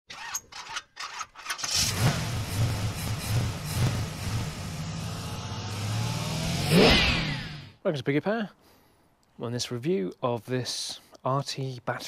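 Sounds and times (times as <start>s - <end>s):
engine starting and running: 0.1s - 7.8s.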